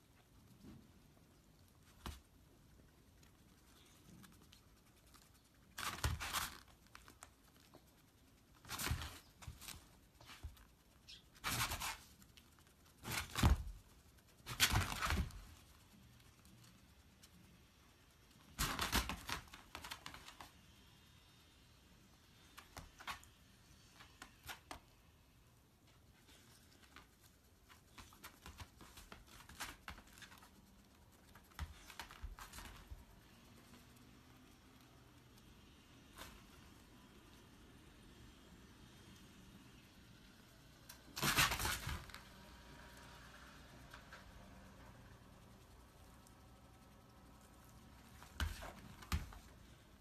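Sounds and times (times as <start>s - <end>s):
animals clicking and rustling: 0.0s - 20.6s, 25.9s - 36.5s
dog paws scuffing on a mat: 1.8s - 2.4s, 3.5s - 17.4s, 25.8s - 34.0s, 47.9s - 50.0s.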